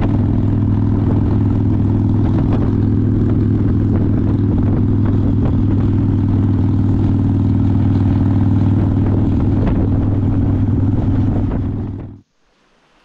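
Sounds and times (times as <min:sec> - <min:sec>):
motorcycle engine cruising: 0:00.0 - 0:12.2.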